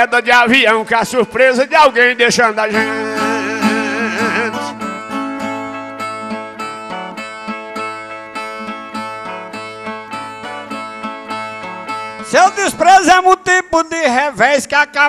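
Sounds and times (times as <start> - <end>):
plucked and strummed viola: 1.9 - 13.0
person singing: 2.6 - 5.2.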